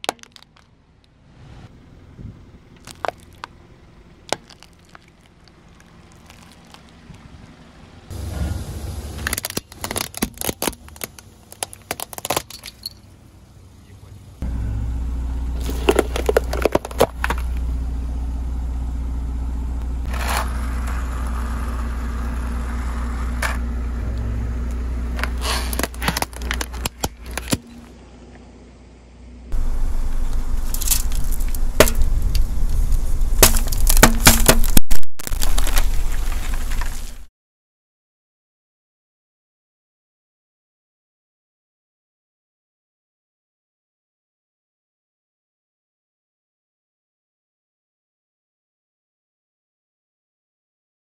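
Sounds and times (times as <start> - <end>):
car engine humming: 0.1 - 37.3
tyre crushing objects cracking: 4.3 - 7.0, 8.4 - 12.9, 15.6 - 17.6, 25.1 - 27.9, 30.1 - 37.3.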